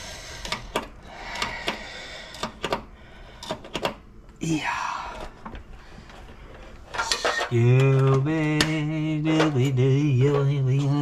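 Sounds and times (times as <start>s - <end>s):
man singing wordless tune: 7.4s - 11.0s.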